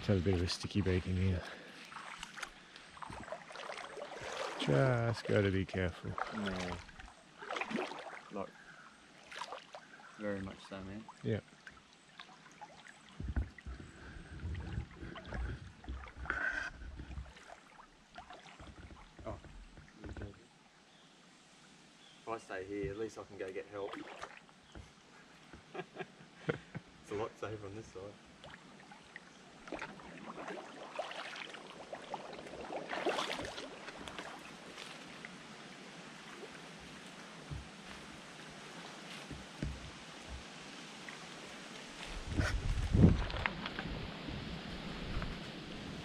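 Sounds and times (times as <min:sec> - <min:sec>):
wind buffeting microphone: 0:13.2 - 0:15.8, 0:42.1 - 0:46.0.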